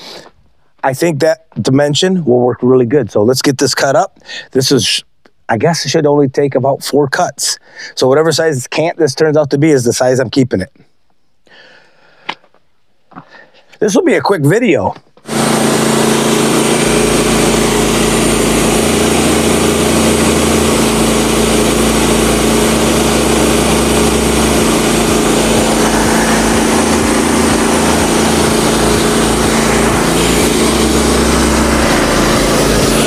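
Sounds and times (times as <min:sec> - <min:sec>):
small gasoline engine running: 0:15.2 - 0:33.0.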